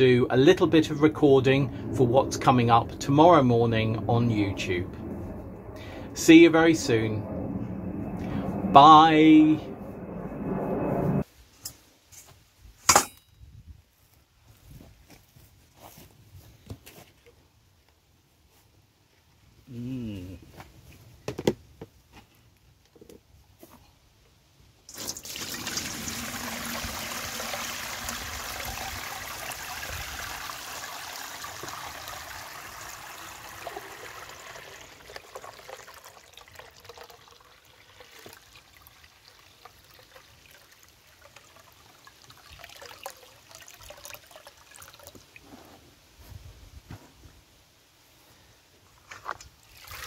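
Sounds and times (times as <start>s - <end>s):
liquid pouring and splashing: 24.9s - 45.4s, 49.6s - 50.0s
liquid trickling and dripping: 24.9s - 45.5s.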